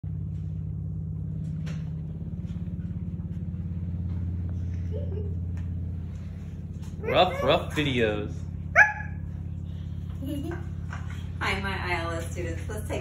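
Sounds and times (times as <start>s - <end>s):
motor rumble with fast throb: 0.0s - 13.0s.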